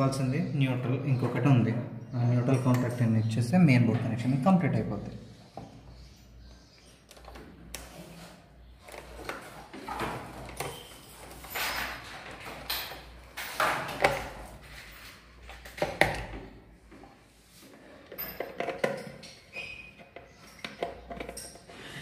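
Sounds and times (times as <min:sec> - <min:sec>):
clicks and metallic clinks of wires: 0:02.4 - 0:03.2, 0:08.8 - 0:17.1.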